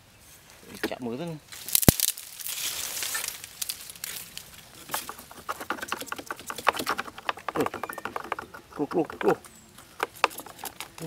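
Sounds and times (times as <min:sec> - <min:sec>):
rotten wood crackling: 0:00.8 - 0:11.0
rod tapping and scraping: 0:03.1 - 0:11.0.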